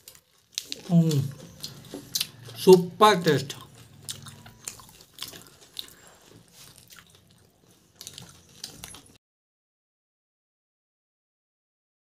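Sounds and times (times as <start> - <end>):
person chewing: 0.0 - 9.2.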